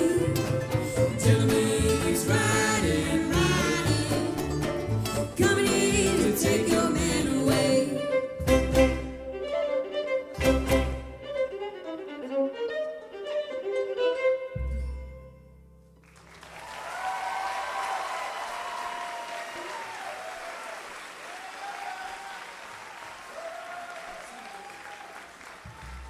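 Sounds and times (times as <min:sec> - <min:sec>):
fiddle-led band tune: 0:00.0 - 0:15.4
audience applause: 0:16.0 - 0:26.0
audience cheering: 0:16.1 - 0:26.0.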